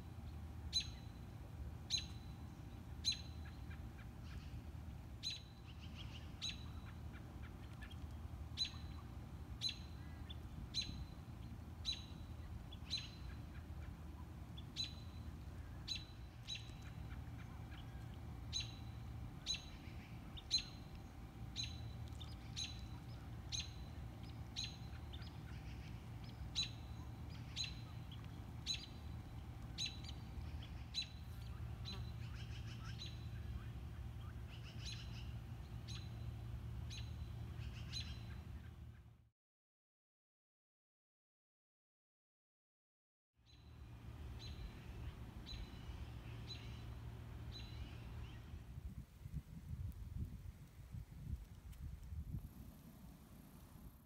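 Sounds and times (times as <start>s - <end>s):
low steady rumble: 0.0s - 39.2s, 43.5s - 54.0s
bird chirping: 0.7s - 1.2s, 1.9s - 4.5s, 8.6s - 11.2s, 11.8s - 13.9s, 14.6s - 38.7s.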